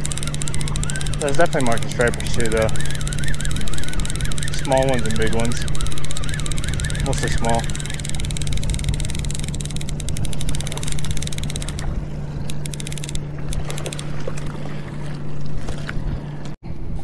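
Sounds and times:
boat motor humming: 0:00.0 - 0:16.6
noisy wash: 0:00.0 - 0:17.0.

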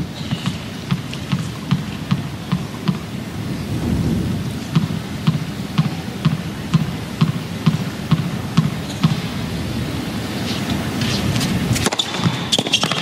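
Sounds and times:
tennis ball bouncing: 0:00.2 - 0:03.0, 0:04.7 - 0:09.2, 0:11.7 - 0:13.0
crowd murmur: 0:05.4 - 0:11.2.

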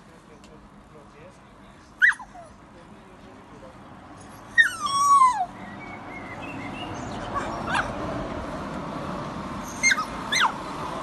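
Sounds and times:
dog high whimpers: 0:02.0 - 0:02.6, 0:04.4 - 0:05.5, 0:09.7 - 0:10.6
dog whining: 0:02.0 - 0:02.6, 0:04.4 - 0:05.5, 0:09.7 - 0:10.6.

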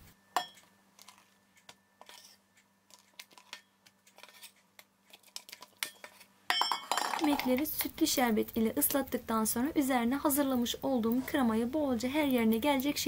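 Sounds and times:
utensil tapping glass dish: 0:00.4 - 0:00.7
utensil tapping metal bowl: 0:00.4 - 0:00.7, 0:05.8 - 0:07.9.

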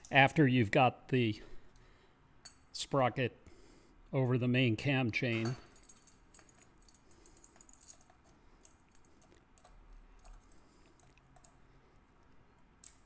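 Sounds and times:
metal chain clicking on sprocket: 0:05.7 - 0:11.6.

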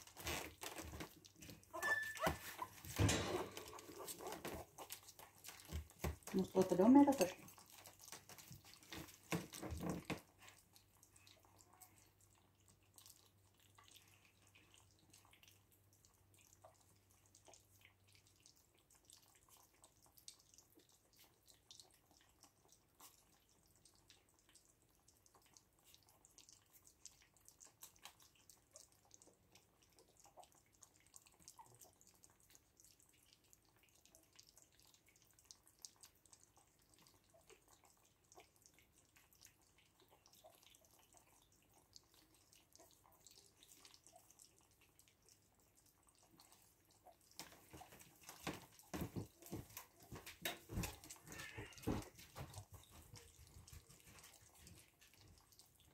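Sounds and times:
puppies lapping and smacking: 0:00.0 - 0:55.9.

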